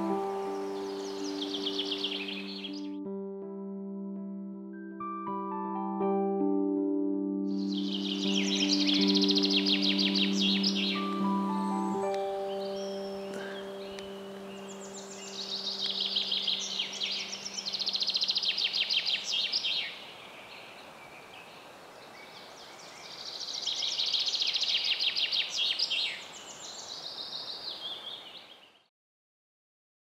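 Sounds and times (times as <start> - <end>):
songbird trilling: 0.0 - 2.9, 7.6 - 20.0, 22.2 - 28.5
soft background music: 0.0 - 18.5.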